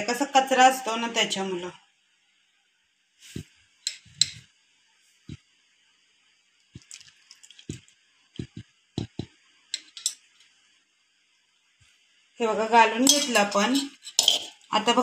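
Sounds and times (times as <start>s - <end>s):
syrup dripping and splashing: 6.7s - 8.5s.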